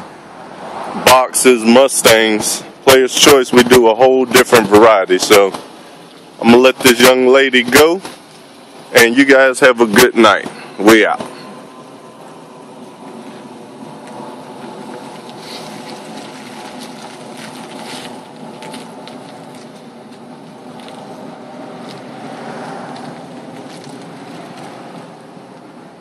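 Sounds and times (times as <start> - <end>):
car engine pulling away slowly: 10.3 - 26.0.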